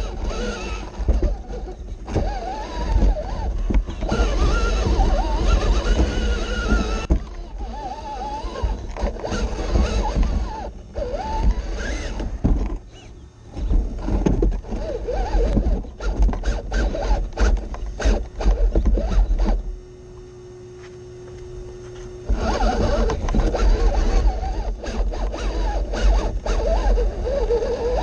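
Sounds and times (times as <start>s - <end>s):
tyres scraping and knocking rock: 0.0s - 19.6s, 22.3s - 28.0s
toy motor and gears whining: 0.0s - 19.7s, 22.0s - 28.0s
steady hum: 0.0s - 28.0s.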